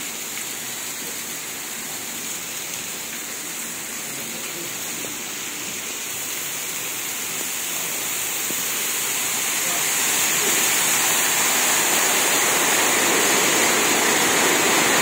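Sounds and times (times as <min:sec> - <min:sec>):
rushing water: 0:00.0 - 0:15.0.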